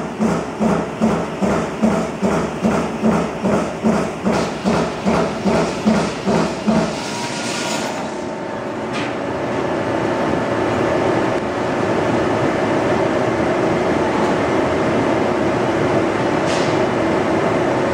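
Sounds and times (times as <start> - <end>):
punch press punching sheet metal: 0.0 - 8.2.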